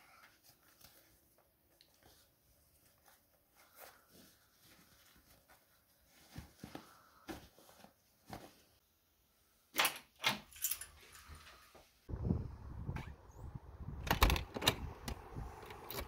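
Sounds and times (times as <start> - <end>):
bootlaces rustling: 0.1 - 8.8
keys jangling: 10.5 - 11.0
low rushing noise: 12.1 - 15.7.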